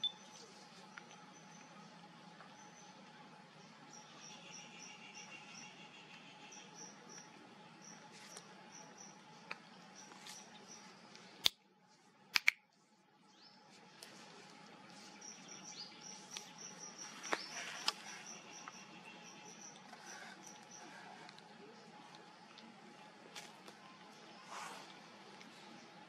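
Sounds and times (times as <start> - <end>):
faint steady drone: 0.0 - 26.0
sharp clicks: 12.4 - 12.6
insects chirping: 15.2 - 21.2.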